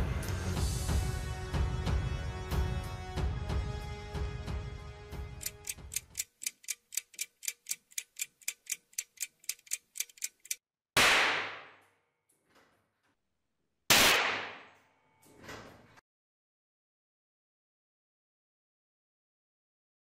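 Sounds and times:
clock ticking: 5.4 - 10.6
cartridge bangs: 13.9 - 14.8.

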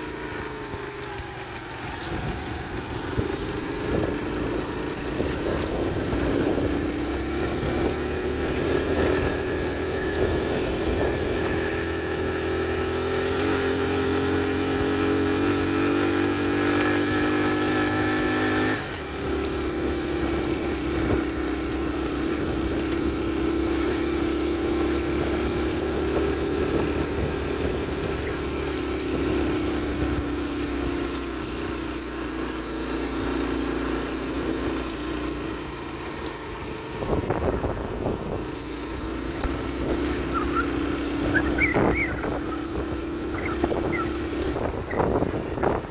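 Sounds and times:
two-stroke motorcycle engine running: 0.0 - 45.9
wind on microphone: 2.0 - 13.0, 19.8 - 30.4, 36.9 - 45.9.

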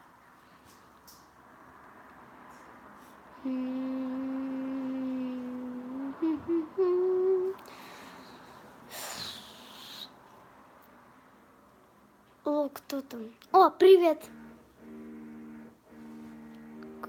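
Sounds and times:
girl humming: 3.4 - 7.8
short hissing noise: 7.7 - 10.2.

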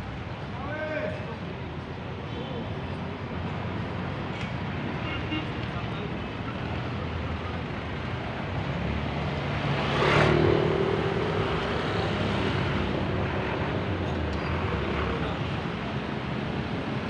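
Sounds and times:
street traffic: 0.0 - 17.0
vehicle passing by: 8.8 - 13.1.

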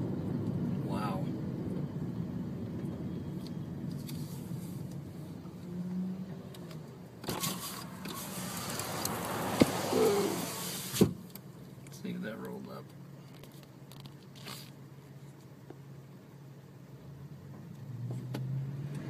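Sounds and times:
car engine and road hum: 0.0 - 19.0
loud hiss: 9.6 - 11.1.

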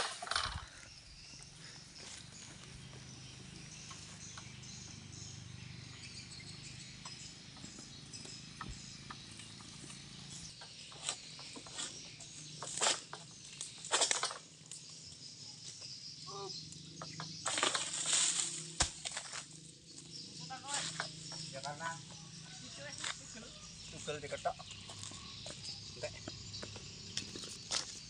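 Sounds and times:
palm fronds rustling and scraping: 9.3 - 15.0, 17.4 - 25.5, 27.2 - 28.0.

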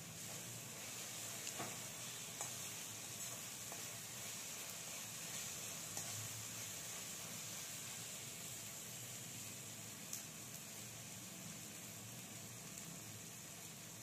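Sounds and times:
food sizzling in hot oil: 0.0 - 14.0
spatula clicking against pan: 2.4 - 2.6.

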